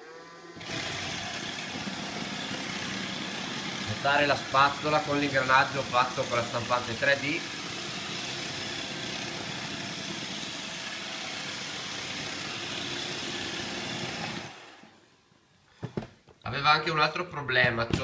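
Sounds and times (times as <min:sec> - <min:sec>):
robot vacuum running: 0:00.0 - 0:10.2.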